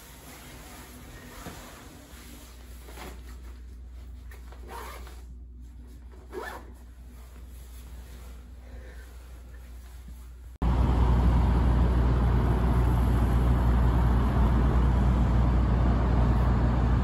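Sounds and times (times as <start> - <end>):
zipper on soft bag: 4.5 - 5.3, 6.2 - 7.2.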